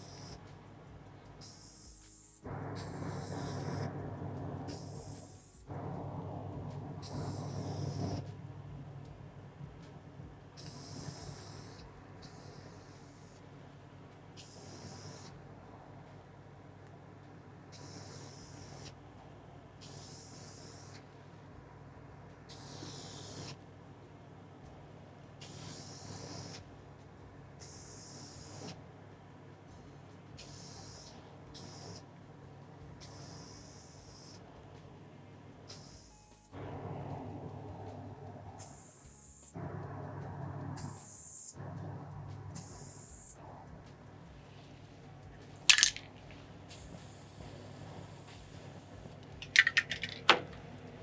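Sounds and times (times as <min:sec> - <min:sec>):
spray can hissing: 0:00.0 - 0:00.4, 0:45.7 - 0:46.1
steady low hum: 0:00.0 - 0:51.0
low hum: 0:02.4 - 0:12.8, 0:36.6 - 0:38.6, 0:39.5 - 0:47.1
aerosol can spraying: 0:10.6 - 0:13.4.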